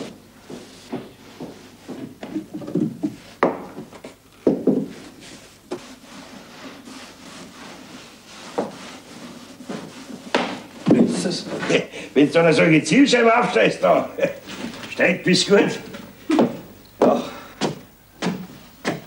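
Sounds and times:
floor scrubbing by hand: 0.0s - 11.9s, 13.1s - 19.0s
sharp knocks: 16.3s - 19.0s.

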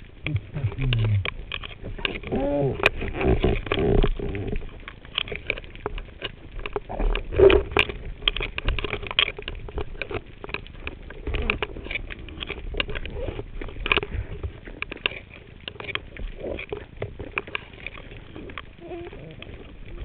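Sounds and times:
low underwater rumble: 0.0s - 8.6s
underwater clicking and crackling: 0.0s - 20.0s.

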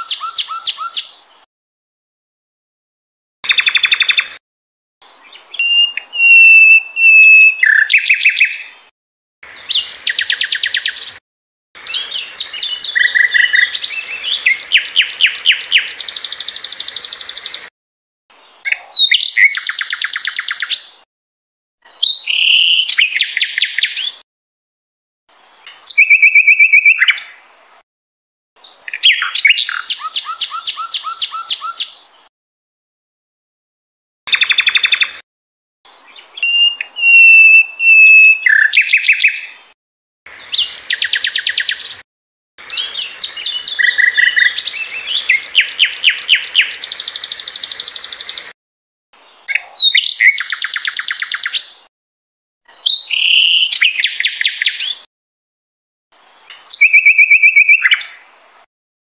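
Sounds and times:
songbird singing trills: 0.0s - 1.1s, 3.5s - 4.4s, 5.1s - 8.8s, 9.5s - 11.2s, 11.8s - 17.7s, 18.6s - 20.8s, 21.9s - 24.2s, 25.7s - 27.4s, 28.6s - 32.0s, 35.9s - 39.6s, 40.4s - 42.0s, 42.6s - 48.5s, 49.4s - 51.6s, 52.7s - 55.1s, 56.5s - 58.3s.

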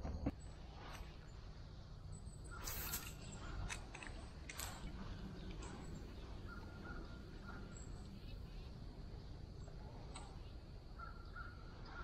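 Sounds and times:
fishing reel rustles and clicks: 2.5s - 6.2s.

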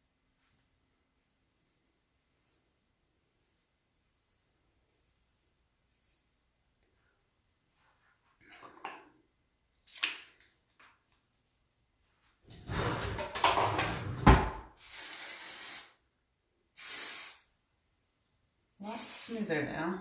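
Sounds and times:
aerosol can hissing: 14.8s - 16.0s, 16.8s - 17.5s.

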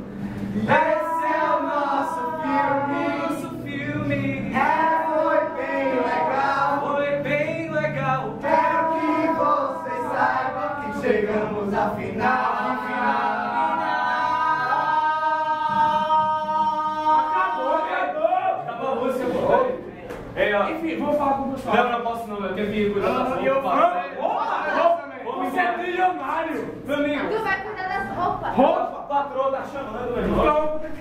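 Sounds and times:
group singing without instruments: 0.0s - 18.7s.

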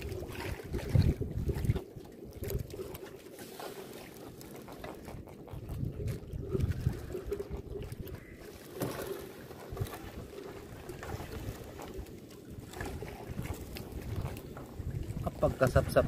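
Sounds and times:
wind gusts on microphone: 0.0s - 2.8s, 5.1s - 8.4s, 12.6s - 16.0s.

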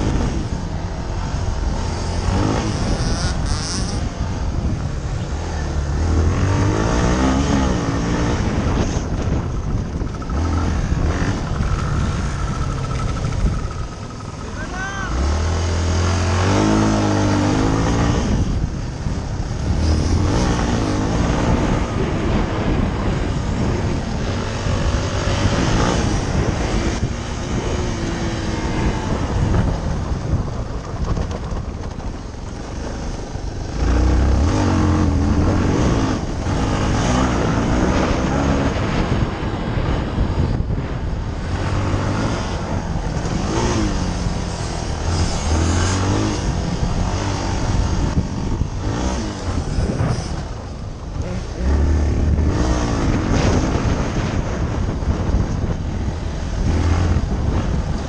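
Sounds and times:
wind rushing over microphone: 0.0s - 58.0s
dirt bike engine revving: 1.3s - 4.6s, 5.8s - 22.9s, 33.7s - 39.1s, 41.5s - 55.2s.

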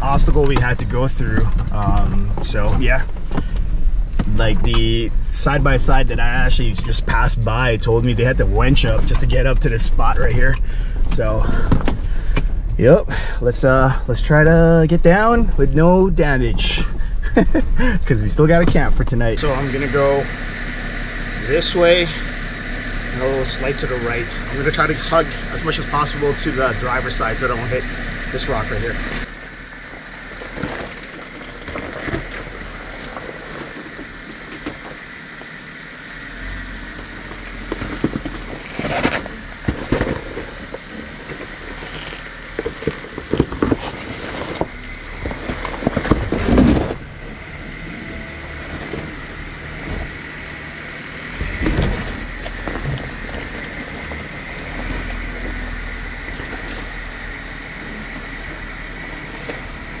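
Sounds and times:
engine with high whine: 0.0s - 60.0s
tyres crunching and knocking on rock: 37.6s - 47.1s.

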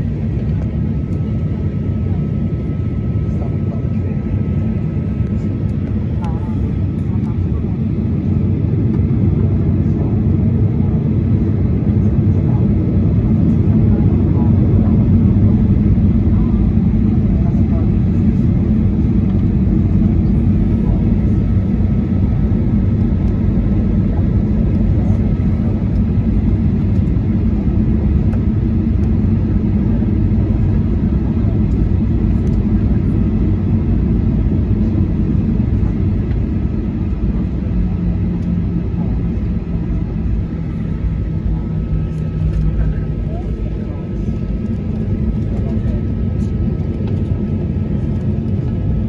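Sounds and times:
airplane cabin rumble: 0.0s - 49.0s
low hum: 13.3s - 49.0s.

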